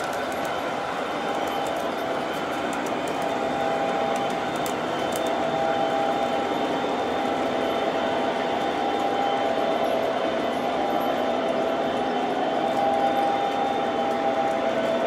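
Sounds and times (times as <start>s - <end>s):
model train wheels clattering on rails: 0.0s - 6.6s
steady whine: 0.0s - 15.0s.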